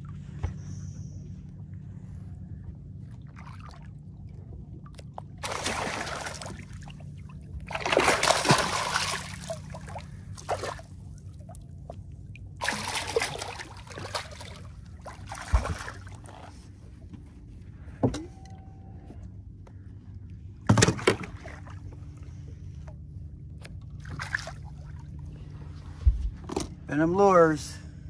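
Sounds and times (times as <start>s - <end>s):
low motor hum: 0.0s - 28.0s
fish splashing water: 5.4s - 11.0s, 12.6s - 16.3s.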